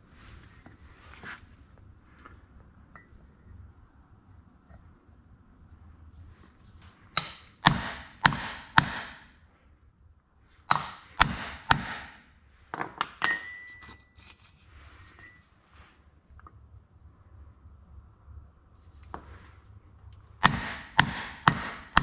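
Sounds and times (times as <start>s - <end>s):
hammer striking steel pipe: 7.2s - 9.3s, 10.7s - 12.3s, 20.4s - 22.0s
light metal clinks: 13.2s - 14.1s.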